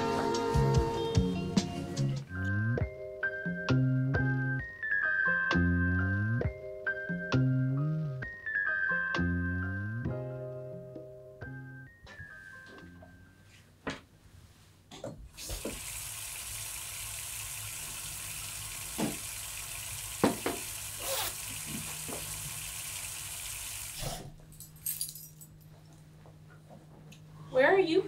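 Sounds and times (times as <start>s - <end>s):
kitchen tap running: 15.4s - 24.0s.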